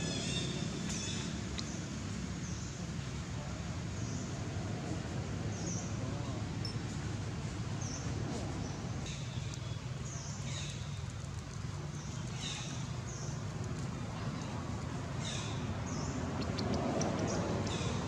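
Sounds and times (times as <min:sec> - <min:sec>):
birds chirping: 0:00.0 - 0:03.1, 0:05.4 - 0:07.0, 0:07.7 - 0:11.2, 0:11.8 - 0:18.0.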